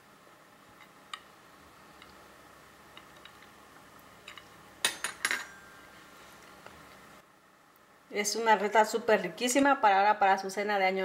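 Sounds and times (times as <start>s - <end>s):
tableware clinking: 4.3s - 6.0s.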